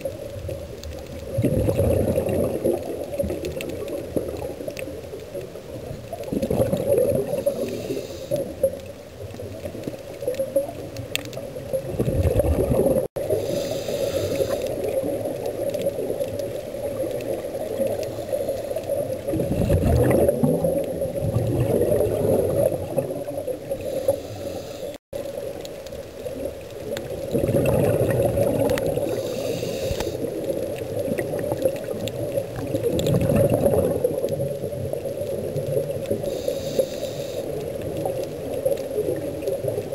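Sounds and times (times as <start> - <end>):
exhaled bubbles gurgling: 0.0 - 39.9
steady underwater drone: 0.0 - 39.9
scuba regulator hissing: 29.1 - 30.2.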